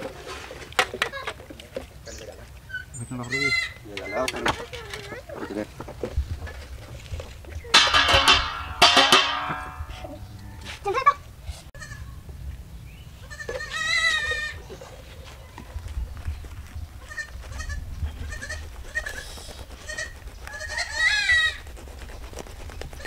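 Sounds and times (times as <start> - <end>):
goat bleating: 3.2 - 5.1, 11.8 - 12.1, 13.2 - 14.7, 17.0 - 21.6.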